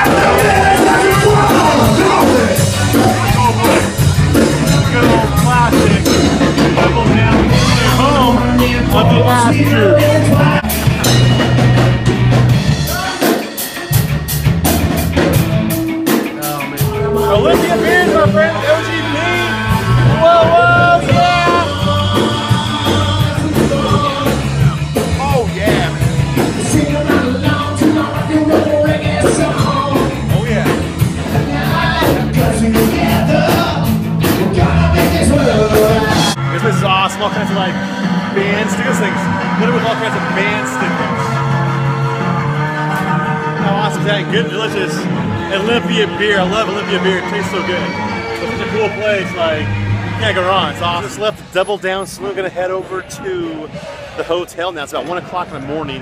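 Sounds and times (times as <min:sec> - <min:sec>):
steady drum beat: 0:00.0 - 0:36.4
loud rock music with singing: 0:00.0 - 0:51.5.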